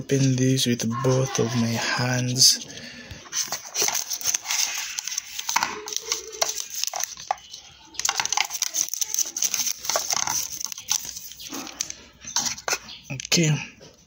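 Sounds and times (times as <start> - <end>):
cardboard packaging rustling: 3.2 - 12.8
plastic wrap crinkling: 3.2 - 13.3.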